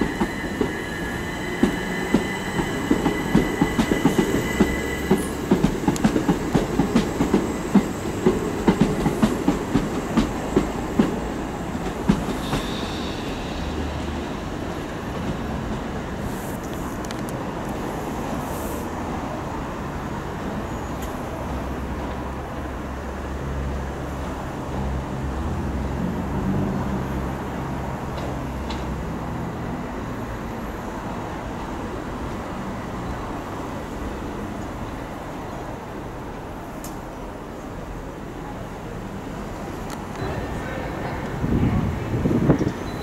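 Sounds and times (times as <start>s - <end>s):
electric train departing: 0.0s - 43.0s
road traffic: 0.0s - 43.0s.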